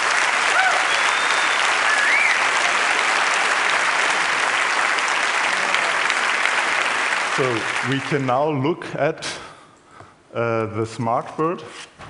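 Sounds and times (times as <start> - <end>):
large audience applauding: 0.0 - 8.6.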